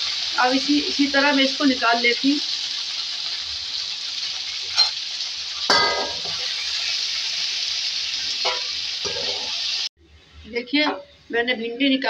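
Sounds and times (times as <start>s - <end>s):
okra sizzling in oil: 0.0s - 11.6s
metal spoon clanging on pan: 4.7s - 5.0s, 5.7s - 6.5s, 8.4s - 9.5s.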